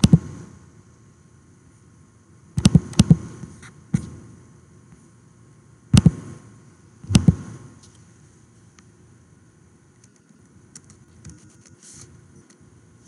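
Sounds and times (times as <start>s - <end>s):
computer mouse double-clicks: 2.6s - 3.2s, 6.0s - 6.2s.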